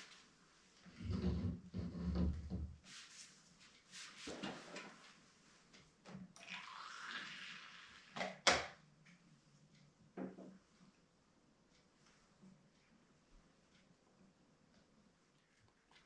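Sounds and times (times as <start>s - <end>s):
hot water pouring into gourd: 6.4s - 8.2s.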